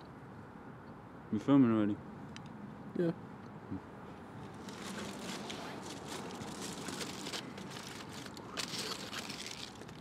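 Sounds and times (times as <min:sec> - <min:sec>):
outdoor background hiss: 0:00.0 - 0:10.0
aluminium foil crinkling: 0:04.6 - 0:10.0.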